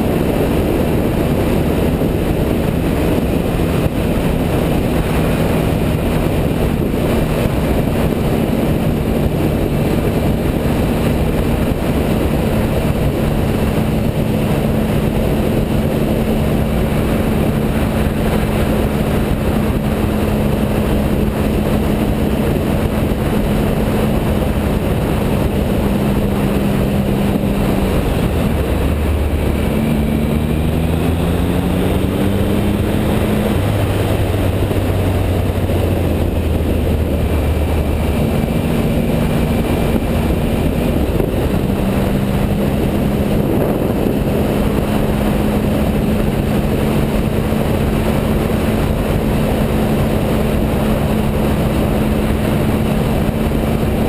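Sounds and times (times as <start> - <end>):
motorcycle engine cruising: 0.0 - 54.0
wind and road noise: 0.0 - 54.0.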